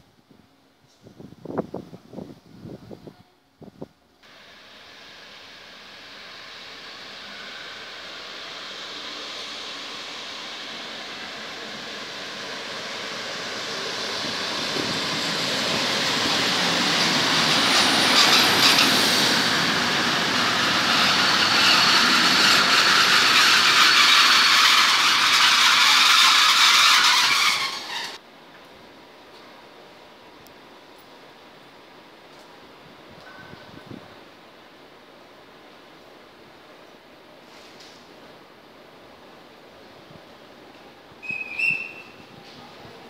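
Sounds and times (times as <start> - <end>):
train passing on rails: 0.0 - 43.0
train high whine: 4.2 - 28.2, 39.0 - 43.0.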